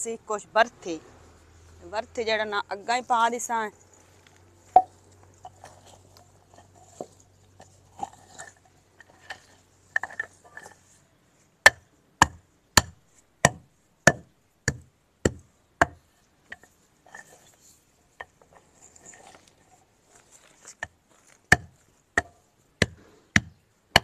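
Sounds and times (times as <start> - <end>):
soil scraping and tapping: 2.2 - 24.0
wooden rod pounding earth: 4.7 - 10.9, 11.7 - 17.6, 18.2 - 24.0.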